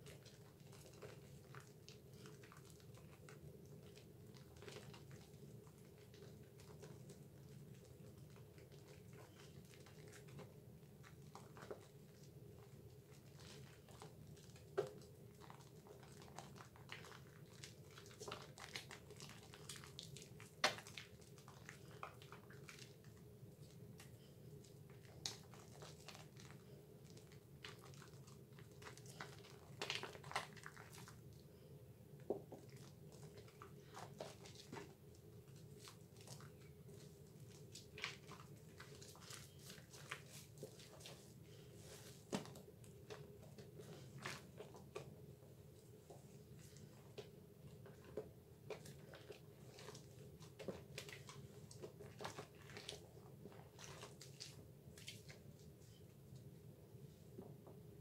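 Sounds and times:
wet squishing of soap lather: 0.0 - 56.5
foam crackles and squelches: 23.6 - 31.2.

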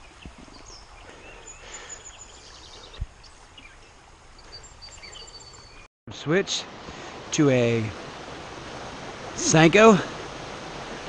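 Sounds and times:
flowing water: 6.1 - 11.0.

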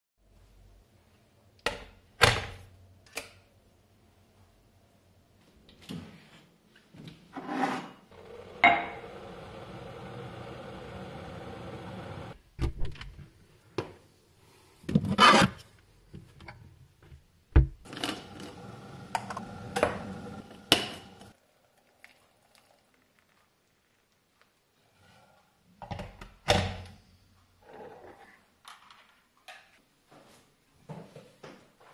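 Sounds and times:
hot water pouring into a mug: 8.2 - 12.4, 17.9 - 24.1
crockery and utensils clinking: 8.6 - 9.1.

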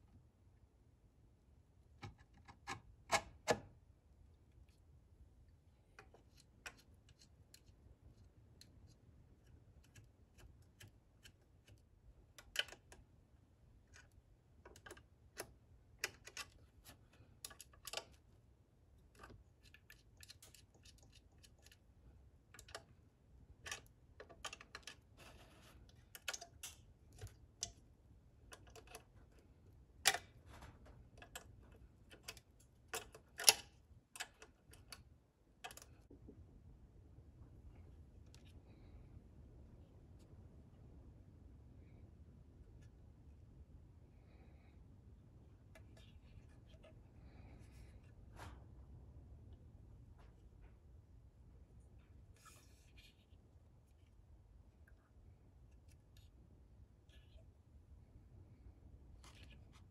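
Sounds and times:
plastic parts clicking: 30.0 - 35.0, 35.6 - 36.0.

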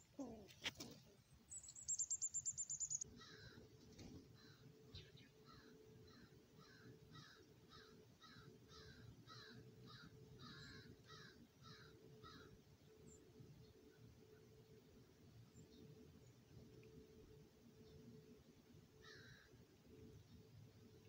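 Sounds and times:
blue jay harsh calls: 5.5 - 12.5, 19.0 - 19.5.

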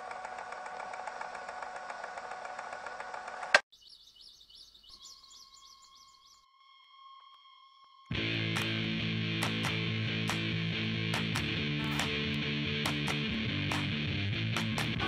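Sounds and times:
mechanical whirring rattle: 0.0 - 3.6
small birds chirping: 3.7 - 6.5.

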